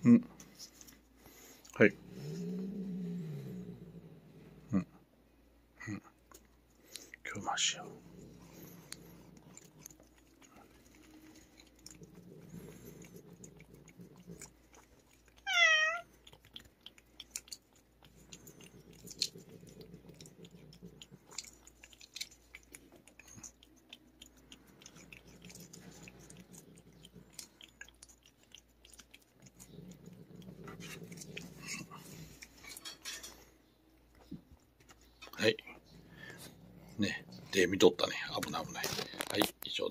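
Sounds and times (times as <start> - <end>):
cat licking and smacking: 6.3 - 33.0
cat crying: 15.4 - 16.1.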